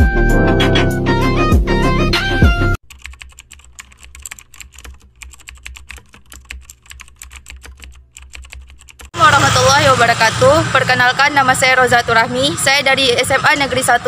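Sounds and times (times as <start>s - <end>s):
loud music: 0.0s - 2.8s
keyboard typing: 2.8s - 9.2s.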